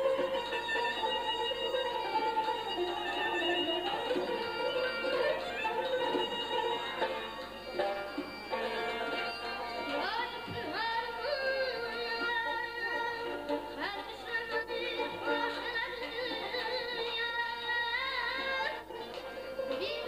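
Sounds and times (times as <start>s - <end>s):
boy singing ornamented notes: 0.0s - 20.0s
string instrument accompaniment: 0.0s - 20.0s.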